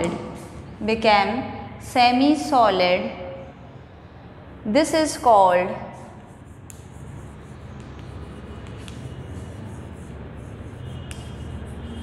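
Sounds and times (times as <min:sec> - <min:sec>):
low room hum: 0:00.0 - 0:12.0
chalk scratching on blackboard: 0:05.8 - 0:12.0.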